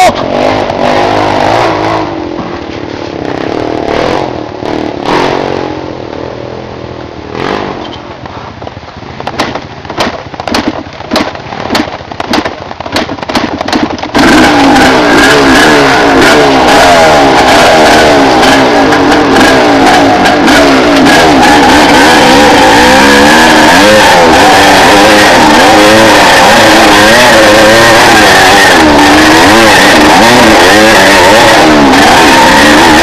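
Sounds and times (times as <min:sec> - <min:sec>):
motorcycle engine revving: 0:00.0 - 0:33.0
knocks and scrapes: 0:07.5 - 0:14.5.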